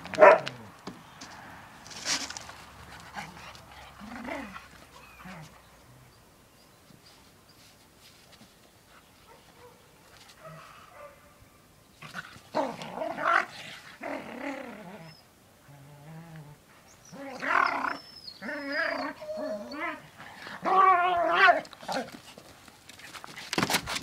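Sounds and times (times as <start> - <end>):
dogs growling while play-fighting: 3.0 - 5.6, 12.0 - 22.2.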